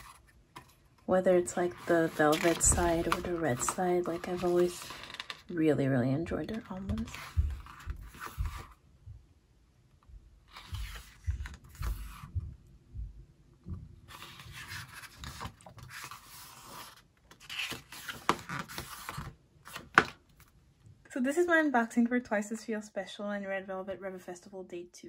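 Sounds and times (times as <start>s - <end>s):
paper pages turning: 0.0s - 5.6s, 6.4s - 8.8s, 10.5s - 12.3s, 14.1s - 20.5s.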